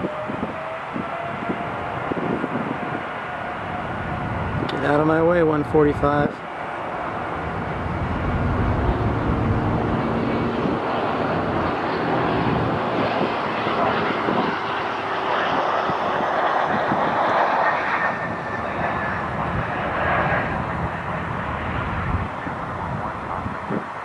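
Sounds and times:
jet engines rushing: 0.0s - 24.0s
low rumble: 6.8s - 12.9s.

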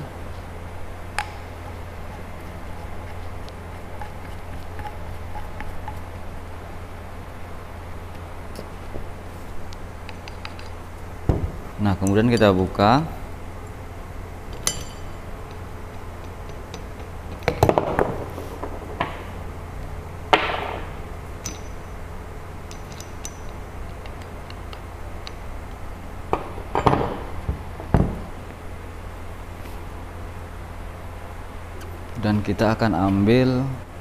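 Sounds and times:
metal tools clicking and clinking: 11.9s - 12.6s, 14.5s - 15.2s, 21.4s - 22.0s, 22.7s - 25.4s.

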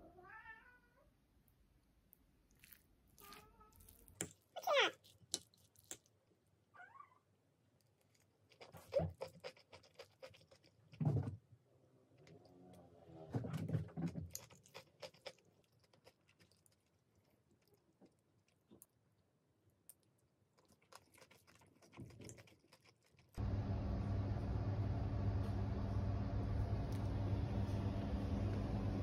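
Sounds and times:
close chewing: 2.4s - 6.2s, 7.8s - 11.0s, 13.9s - 19.0s, 19.8s - 23.4s.

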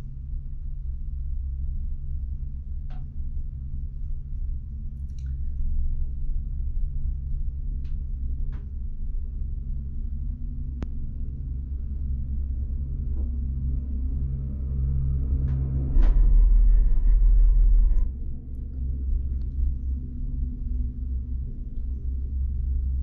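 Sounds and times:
louder low rumble: 0.0s - 23.0s
faint clicks: 5.0s - 5.5s.

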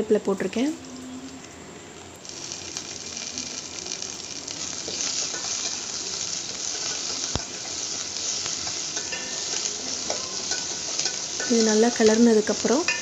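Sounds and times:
aromatics sizzling in hot oil: 0.4s - 13.0s
spoon stirring in pot: 4.8s - 11.6s.

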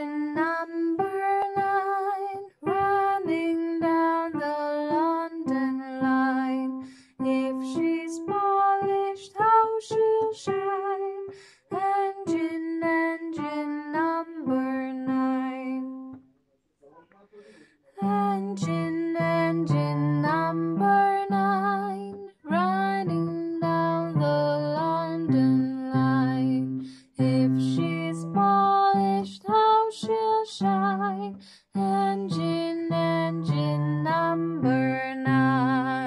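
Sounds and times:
person singing with vibrato: 18.0s - 36.0s.

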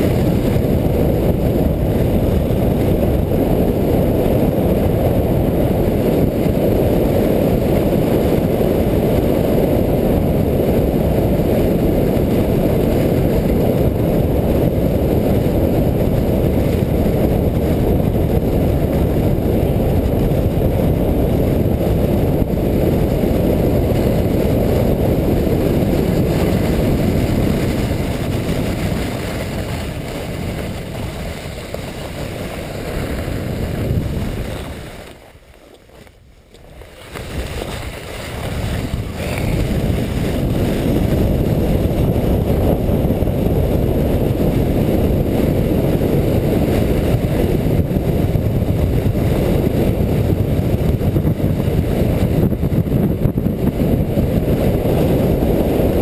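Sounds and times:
wind rushing over camera: 0.0s - 56.0s
sled runners hissing on snow: 23.1s - 36.0s, 36.7s - 41.7s.

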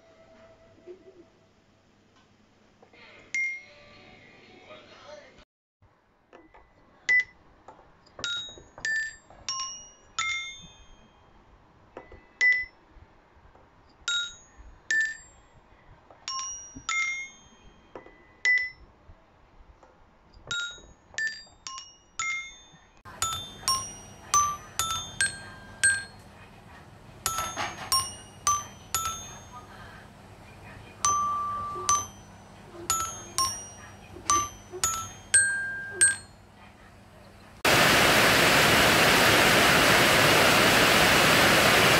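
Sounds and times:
toy xylophone playing a tune: 8.2s - 11.3s, 12.4s - 12.8s, 16.3s - 18.8s, 20.5s - 26.3s, 27.2s - 29.7s, 31.0s - 36.4s.

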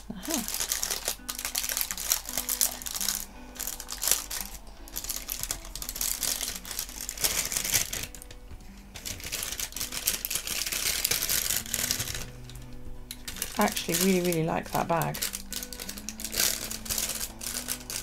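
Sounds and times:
plastic bag crinkling: 0.0s - 18.0s.

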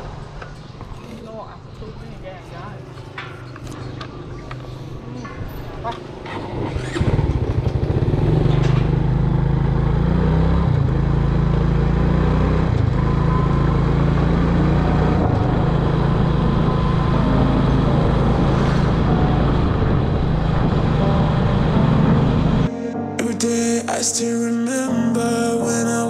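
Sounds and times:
small motorbike engine: 5.2s - 22.7s.

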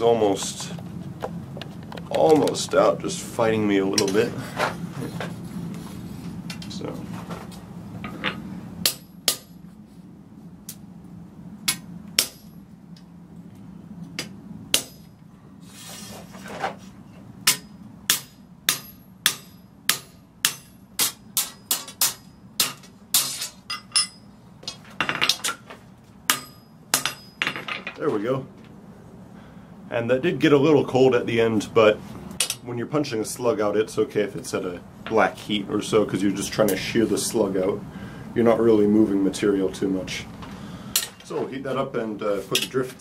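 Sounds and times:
hammer clinking on metal punch: 26.3s - 28.0s.

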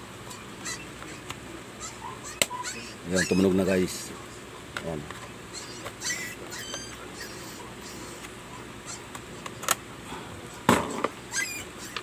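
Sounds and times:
high squeaky chirps: 0.2s - 3.6s, 5.3s - 9.4s, 11.3s - 12.0s.

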